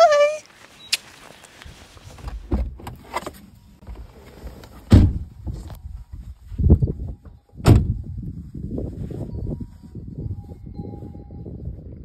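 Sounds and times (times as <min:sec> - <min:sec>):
rustling: 0:00.1 - 0:07.2.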